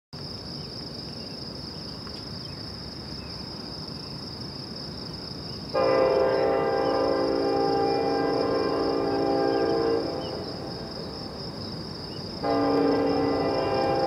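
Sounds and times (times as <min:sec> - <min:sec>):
crickets chirping: 0:00.2 - 0:14.0
locomotive air horn: 0:05.8 - 0:10.8, 0:12.4 - 0:14.0.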